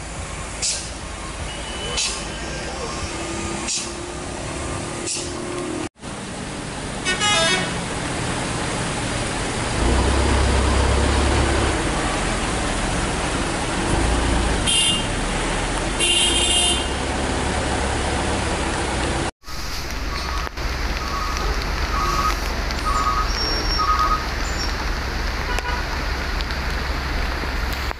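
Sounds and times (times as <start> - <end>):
traffic engines rumbling: 0.0 - 27.9
car horn toots: 7.0 - 7.8, 14.6 - 15.1, 16.0 - 17.0, 25.4 - 25.8.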